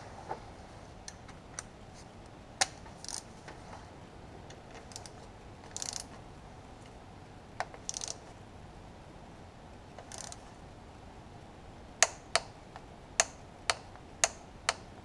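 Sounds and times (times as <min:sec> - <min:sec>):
sharp metal clicks: 0:02.6 - 0:03.3, 0:04.5 - 0:06.2, 0:07.6 - 0:08.3, 0:10.0 - 0:10.5, 0:12.0 - 0:15.0
torque wrench ratchet clicking: 0:03.0 - 0:03.3, 0:04.8 - 0:06.1, 0:07.6 - 0:08.2, 0:10.0 - 0:10.4, 0:13.2 - 0:14.9.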